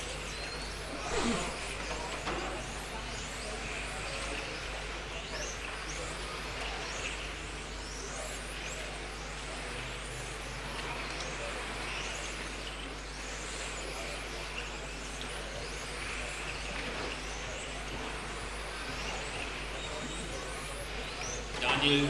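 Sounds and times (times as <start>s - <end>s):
electric toy car motors whining: 0.0s - 13.4s.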